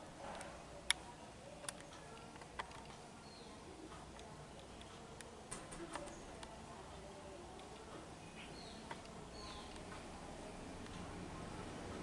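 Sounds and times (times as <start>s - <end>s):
faint steady hiss: 0.0s - 12.0s
sharp clicks: 1.6s - 3.0s.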